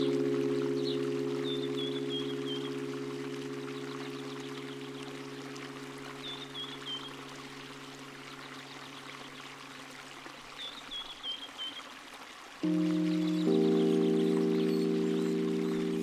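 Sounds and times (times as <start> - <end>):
ambient music drone: 0.0 - 8.8, 12.6 - 16.0
running water: 0.0 - 16.0.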